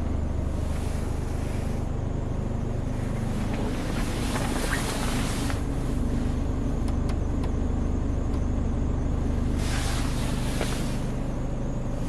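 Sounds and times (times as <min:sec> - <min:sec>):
diesel engine idling: 0:00.0 - 0:12.0
hissing rush of air: 0:09.5 - 0:11.3.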